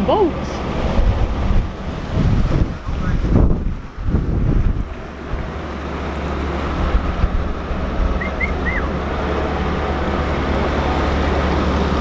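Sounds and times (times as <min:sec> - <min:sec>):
diesel engine idling: 0:00.0 - 0:12.0
wind buffeting microphone: 0:00.0 - 0:12.0
short high chirps: 0:08.2 - 0:08.9.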